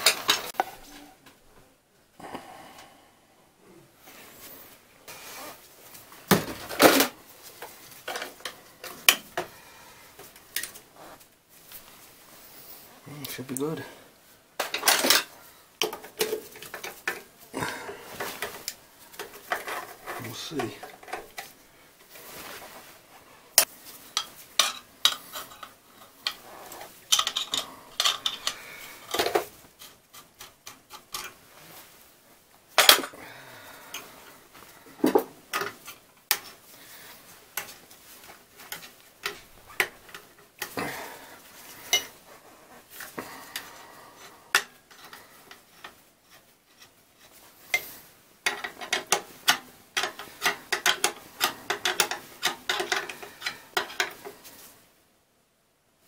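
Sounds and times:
metal tools clinking and rattling: 0:00.0 - 0:00.6, 0:14.6 - 0:21.5, 0:24.2 - 0:29.5, 0:47.7 - 0:54.3.

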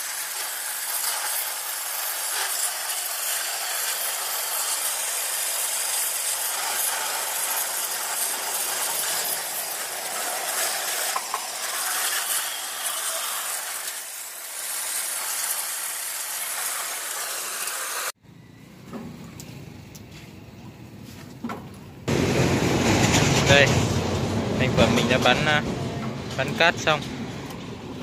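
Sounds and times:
sandblasting gun hissing on metal: 0:00.0 - 0:18.2.

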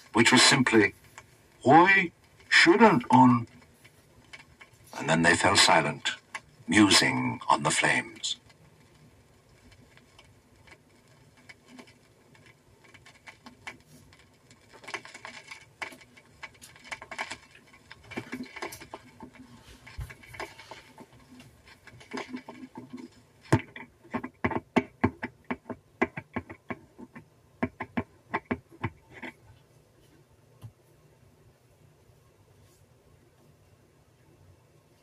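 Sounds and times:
turntable needle clicks and taps: 0:02.2 - 0:29.6.

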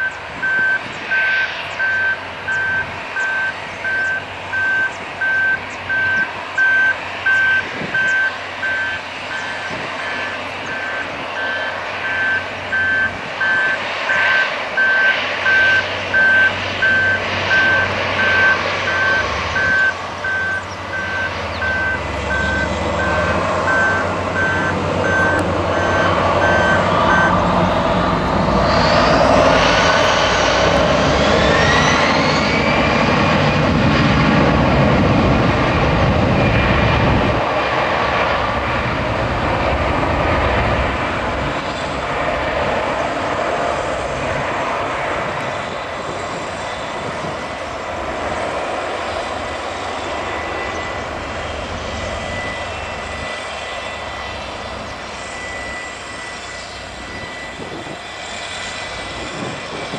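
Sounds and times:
high electronic beeping: 0:00.0 - 0:27.4
jet engines idling: 0:00.0 - 0:59.9
jet engines spooling up: 0:00.0 - 0:59.9.

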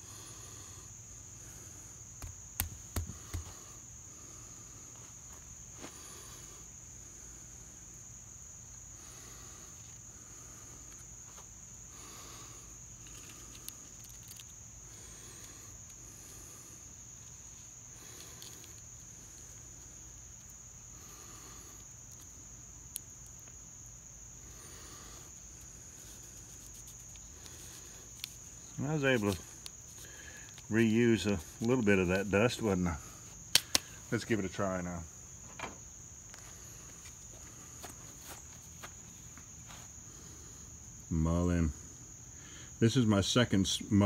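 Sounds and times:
insects chorus: 0:00.0 - 0:44.0
sharp clicks: 0:33.5 - 0:34.0.

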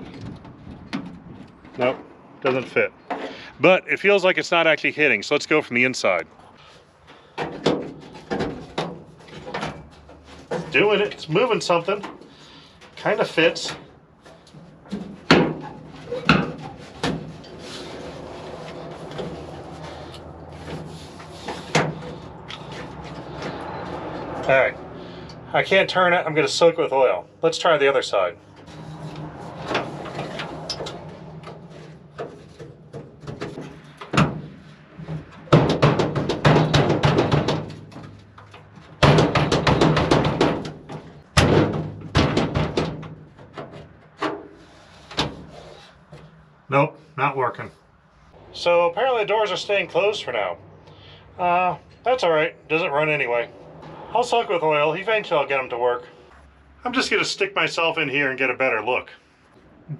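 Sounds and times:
metal truck door rattling and banging: 0:00.0 - 0:02.2, 0:07.3 - 0:11.2, 0:11.9 - 0:24.6, 0:28.5 - 0:44.5, 0:45.2 - 0:46.4
metal knocks and clunks: 0:00.0 - 0:03.5, 0:07.1 - 0:11.2, 0:11.9 - 0:24.6, 0:28.5 - 0:46.4.

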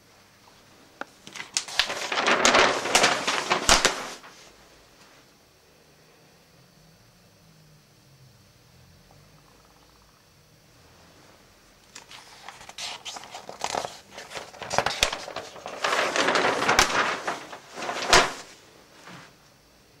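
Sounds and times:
rustling and bumping: 0:01.3 - 0:04.4, 0:13.8 - 0:19.3.

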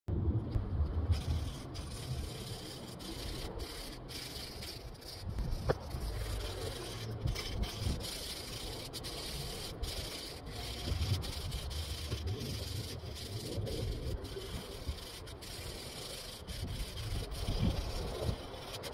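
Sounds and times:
low rumble: 0:00.1 - 0:08.8
sandpaper rubbing on wood: 0:01.1 - 0:18.9.

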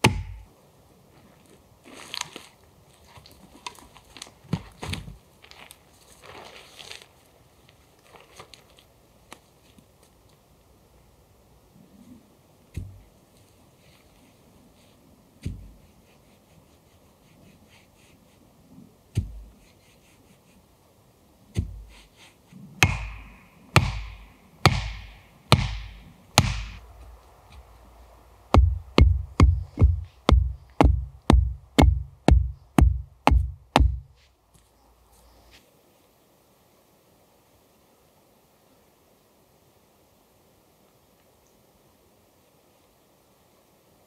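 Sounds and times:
axe pounding wooden stake: 0:00.0 - 0:00.5, 0:12.8 - 0:13.0, 0:19.2 - 0:19.5, 0:21.6 - 0:22.0, 0:22.8 - 0:26.8, 0:28.5 - 0:34.1
dull low thuds: 0:00.0 - 0:00.5, 0:12.7 - 0:13.1, 0:15.4 - 0:15.8, 0:19.1 - 0:19.6, 0:21.5 - 0:22.0, 0:22.8 - 0:27.7, 0:28.5 - 0:34.2.

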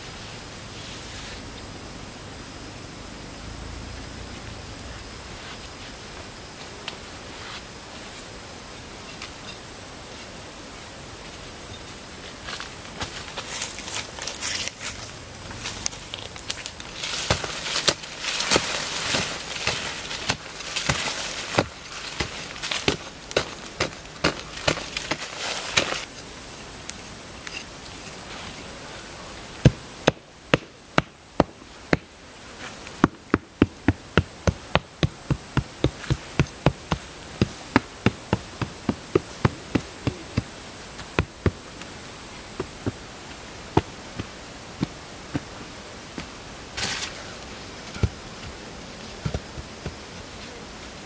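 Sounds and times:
insect buzzing: 0:00.0 - 0:51.0
hand hoe chopping earth: 0:16.8 - 0:26.1, 0:33.0 - 0:41.6, 0:43.8 - 0:45.6, 0:49.2 - 0:50.0.

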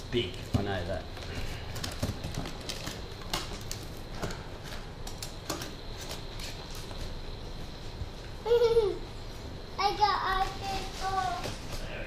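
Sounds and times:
knife cutting packing tape: 0:05.1 - 0:07.0.

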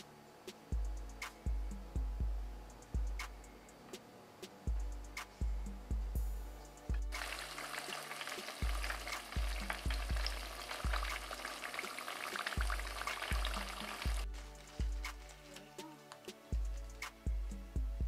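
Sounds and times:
music with deep bass beat: 0:00.0 - 0:11.7, 0:12.4 - 0:18.0
deep-frying oil sizzle: 0:07.2 - 0:14.3.

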